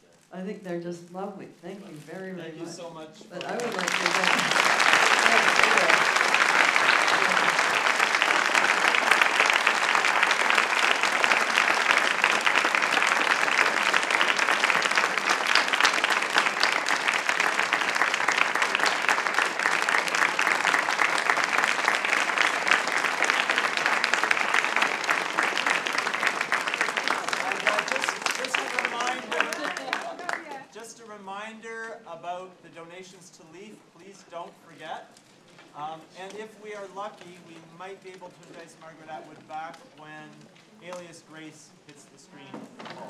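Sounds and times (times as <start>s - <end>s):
audience applauding: 3.4s - 30.7s.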